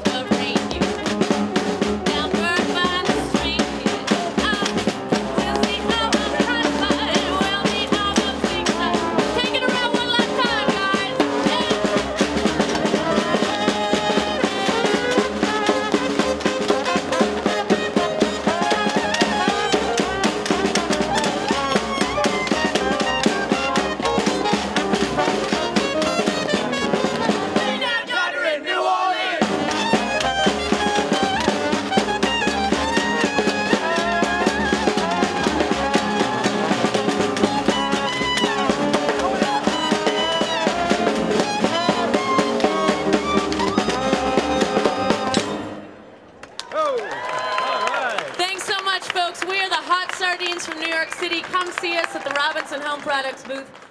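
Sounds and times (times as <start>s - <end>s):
upright bass: 0.0s - 27.9s, 29.4s - 45.8s
snare and bass drum: 0.0s - 28.0s, 29.4s - 45.8s
trombone: 0.0s - 28.0s, 29.3s - 46.0s
trumpet: 0.0s - 46.1s.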